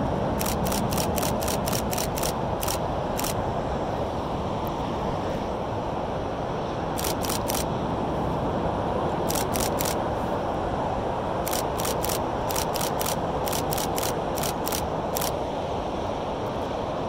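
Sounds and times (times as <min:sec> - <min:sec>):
steady rushing noise: 0:00.0 - 0:17.0
camera shutter clicks: 0:00.4 - 0:03.4, 0:07.0 - 0:07.7, 0:09.3 - 0:10.0, 0:11.5 - 0:15.4.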